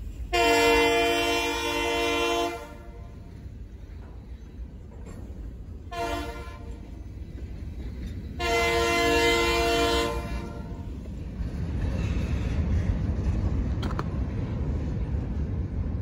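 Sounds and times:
locomotive air horn blasts: 0.3 - 3.2, 5.9 - 6.8, 8.4 - 10.9.

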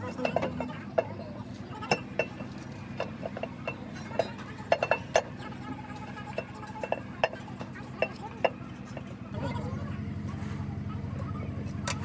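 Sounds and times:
metal taps and clinks: 0.0 - 1.2, 1.8 - 9.1
low machine hum: 0.0 - 12.0.

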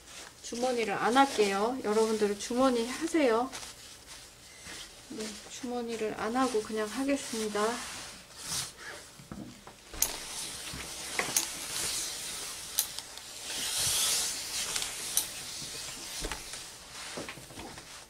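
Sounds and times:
steam iron pushed over fabric: 13.3 - 16.4.

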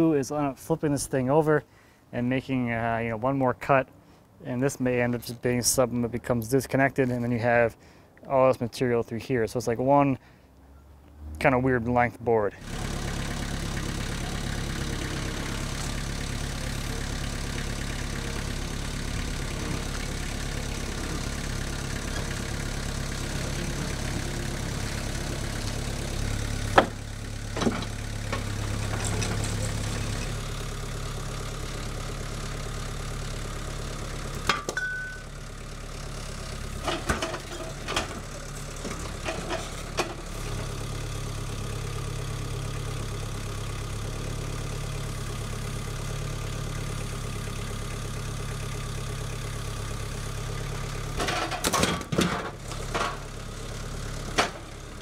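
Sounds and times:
tracked loader engine running: 12.5 - 55.0
wooden knocks and clunks: 26.7 - 29.6.

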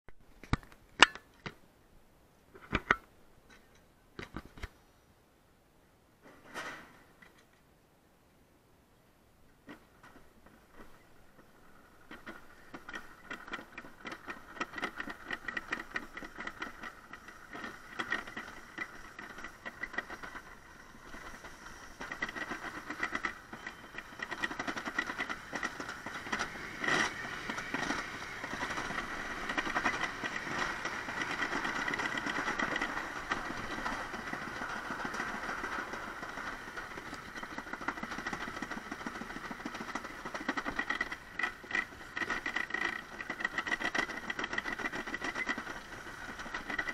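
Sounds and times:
toboggan sled rattling rumble: 9.8 - 46.9.

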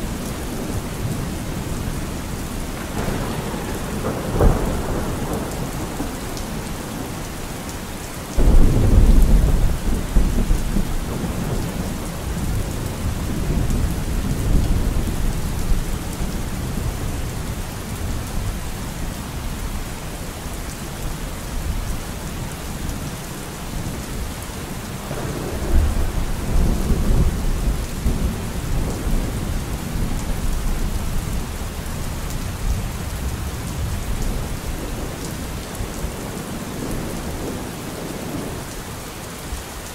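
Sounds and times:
steady rain: 0.0 - 39.9
thunder rolling: 2.8 - 6.2, 8.4 - 15.7.

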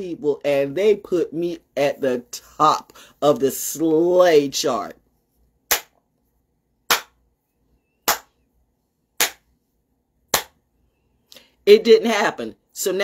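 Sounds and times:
slow hand claps: 6.9 - 7.2, 8.1 - 8.4, 9.2 - 9.5, 10.3 - 10.6.

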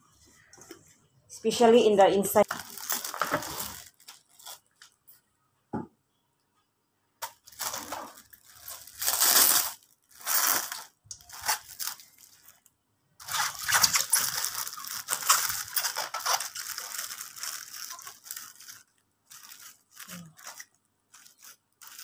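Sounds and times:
plastic wrap crinkling: 2.4 - 5.1, 7.2 - 22.0.

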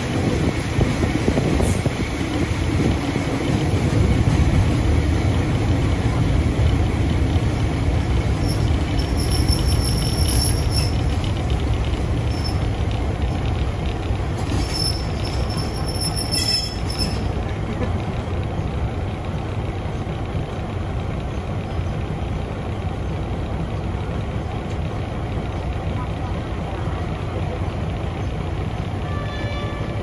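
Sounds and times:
train rumbling: 0.0 - 30.0
wheels squealing from braking: 8.3 - 11.2, 12.2 - 12.8, 14.4 - 17.4.

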